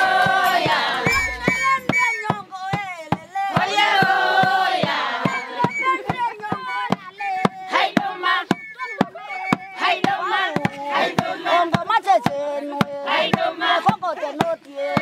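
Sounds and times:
hand drum beating: 0.6s - 3.7s
group of voices chanting: 9.8s - 11.8s.

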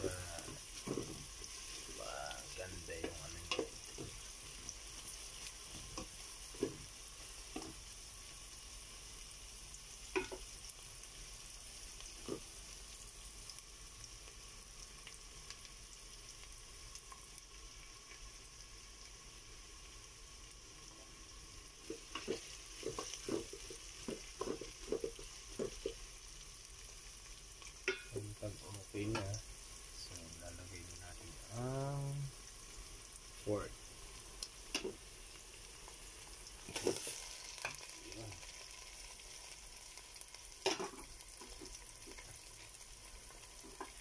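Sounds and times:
onion sizzling in oil: 0.0s - 44.0s
wooden spoon scraping pot: 0.3s - 2.0s, 21.8s - 26.1s.

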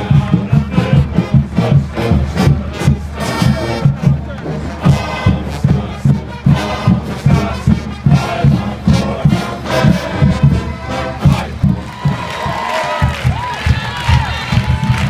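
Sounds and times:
stadium band with drums and brass: 0.0s - 15.0s
crowd shouting along: 8.2s - 15.0s.

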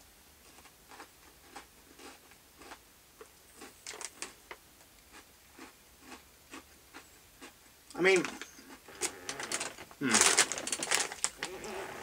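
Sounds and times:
person chewing crunchy snack: 0.4s - 2.8s, 3.6s - 4.4s, 5.1s - 7.6s, 8.4s - 12.0s.

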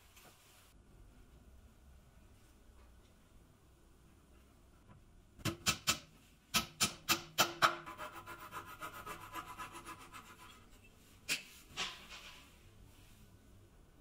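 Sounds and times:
saw rasping on wood: 7.8s - 10.7s.

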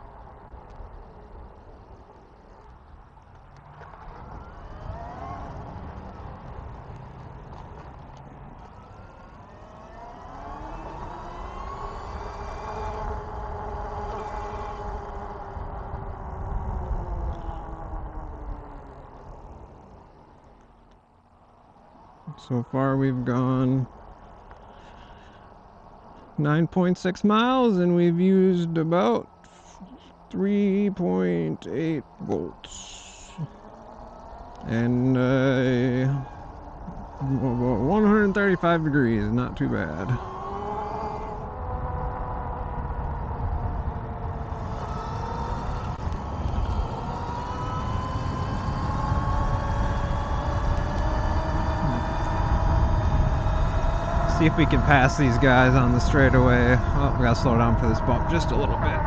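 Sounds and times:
electric bike motor whining: 0.0s - 22.3s, 32.3s - 59.0s
wind rumble on microphone: 0.0s - 26.8s, 27.6s - 59.0s
faint background noise: 0.0s - 59.0s
man speaking: 22.3s - 23.9s, 26.4s - 33.5s, 34.6s - 36.3s, 37.0s - 40.2s, 54.3s - 59.0s.

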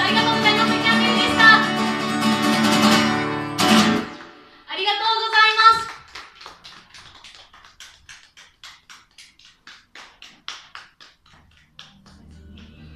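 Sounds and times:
people clapping: 3.7s - 4.4s, 5.3s - 12.9s.

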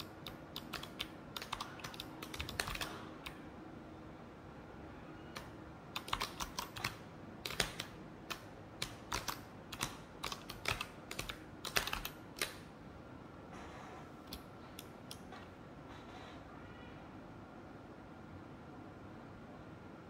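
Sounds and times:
mechanical keyboard typing: 0.0s - 3.4s, 5.3s - 12.6s.

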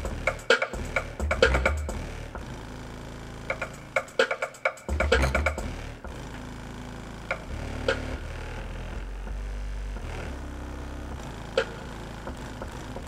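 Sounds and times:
deep bass notes from woofer: 4.9s - 13.0s.

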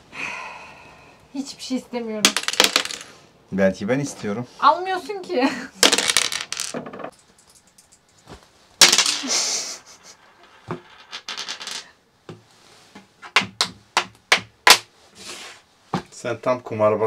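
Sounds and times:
checkers clacking on board: 2.2s - 3.1s, 5.8s - 8.2s, 8.8s - 9.3s, 10.2s - 11.9s
dice rattling on wooden board: 2.2s - 3.2s, 5.8s - 8.2s, 8.8s - 9.3s, 10.0s - 11.9s.

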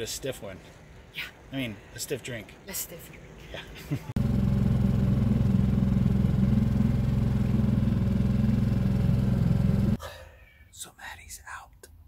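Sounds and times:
outboard motor running: 4.2s - 10.0s.

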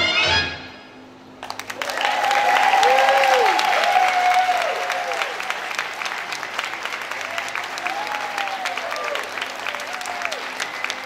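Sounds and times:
audience applauding: 1.4s - 11.0s
whoops: 1.7s - 5.6s, 7.2s - 11.0s.

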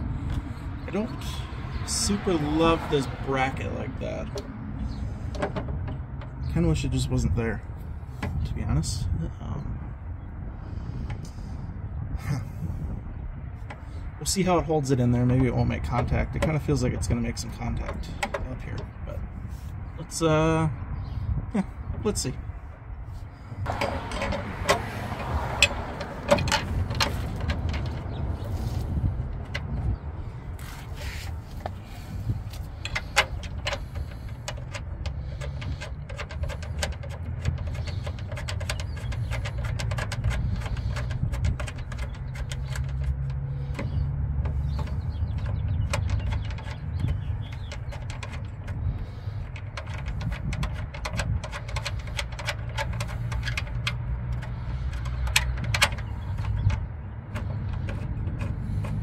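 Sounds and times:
steady low rumble: 0.0s - 59.0s
metallic clicks and knocks of bolts: 15.0s - 19.0s, 23.6s - 29.9s, 31.6s - 59.0s.

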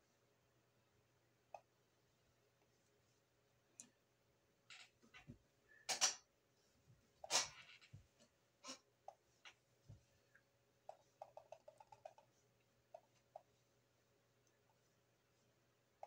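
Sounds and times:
computer mouse clicks: 10.9s - 12.3s.

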